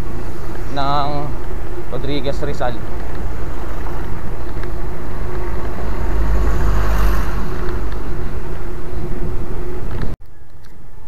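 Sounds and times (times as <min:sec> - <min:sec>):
road and traffic noise: 0:00.0 - 0:11.0
wind on microphone: 0:02.8 - 0:10.2.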